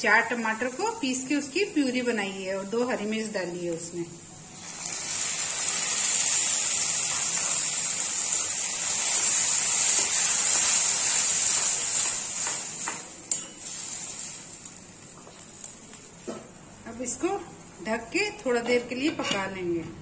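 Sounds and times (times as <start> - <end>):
puree sizzling in hot oil: 4.5 - 16.2.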